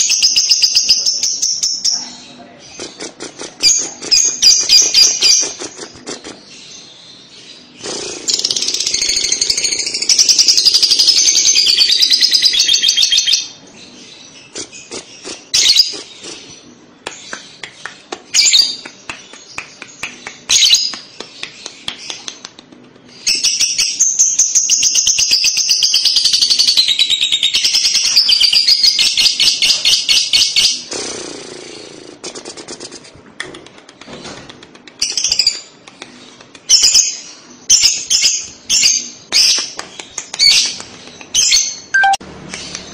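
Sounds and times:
lovebird stuttering chatter: 2.7 - 6.5, 7.8 - 11.2
bird chirps: 36.2 - 42.9.

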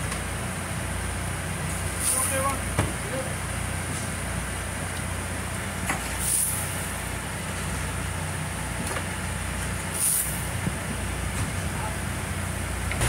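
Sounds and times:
low machinery hum: 0.0 - 13.0
short high-pitched hisses: 6.2 - 6.8, 9.9 - 10.4.

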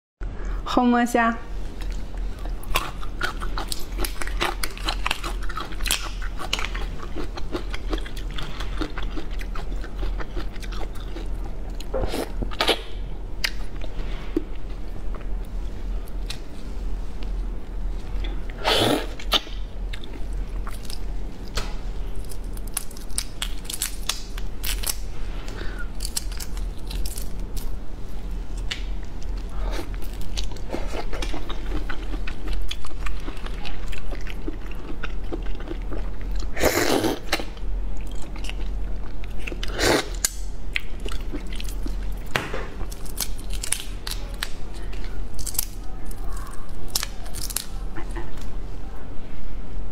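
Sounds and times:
wet chewing: 1.7 - 13.9, 28.5 - 48.5.

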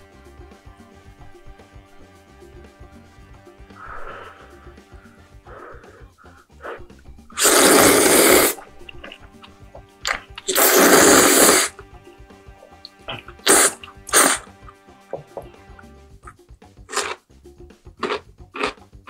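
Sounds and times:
noodle slurping: 6.6 - 11.8, 12.6 - 15.4, 16.9 - 17.2.

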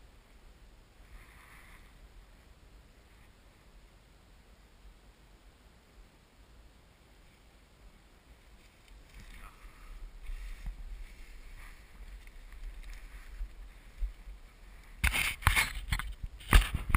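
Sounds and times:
wind rumbling on microphone: 8.2 - 16.9
footsteps through dry grass: 8.4 - 16.9.

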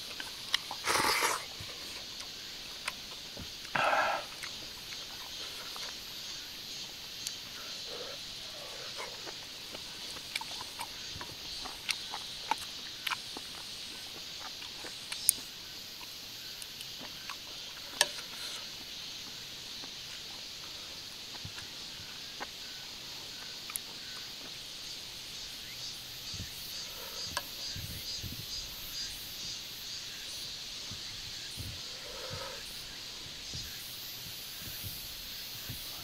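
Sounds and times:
insects hissing: 0.0 - 36.0
chewing smacks: 0.1 - 6.0, 7.2 - 17.5.

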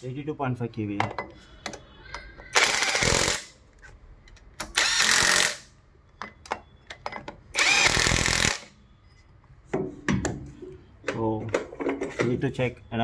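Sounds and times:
cordless impact wrench running: 2.6 - 3.5, 4.7 - 5.7, 7.6 - 8.7.

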